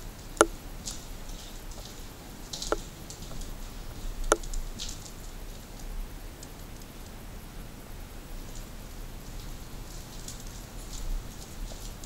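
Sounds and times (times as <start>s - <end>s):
footsteps crunching on grit: 0.8s - 5.7s, 9.2s - 12.0s
sharp clicks: 2.5s - 5.2s.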